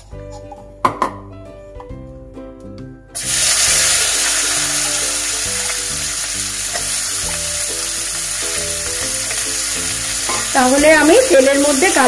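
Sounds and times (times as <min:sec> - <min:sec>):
background music: 0:00.0 - 0:12.0
onions sizzling in hot oil: 0:03.2 - 0:12.0.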